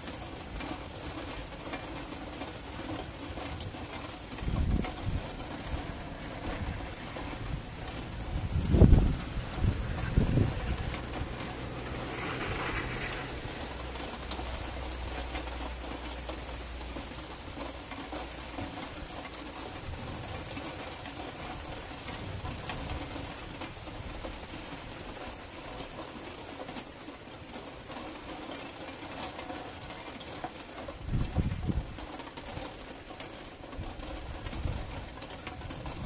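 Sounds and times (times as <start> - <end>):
steady rain falling: 0.0 - 36.0
distant thunder rumble: 4.5 - 15.7.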